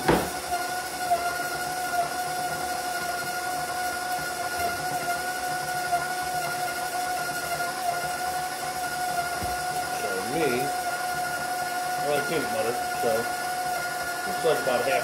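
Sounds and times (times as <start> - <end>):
stand mixer whining: 0.0 - 15.0.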